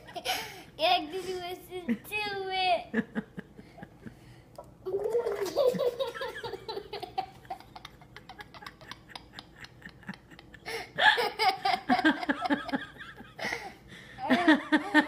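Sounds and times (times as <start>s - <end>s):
young child laughing: 4.9s - 15.0s.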